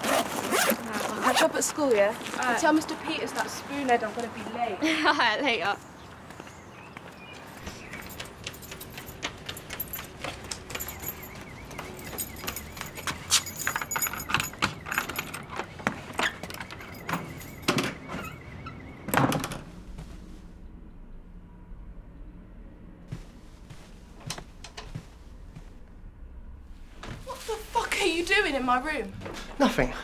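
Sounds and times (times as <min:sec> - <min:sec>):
hurried footsteps: 0:05.8 - 0:17.7, 0:23.1 - 0:26.0
keys jangling in a lock: 0:08.0 - 0:18.4
door opening and shutting: 0:13.1 - 0:20.0.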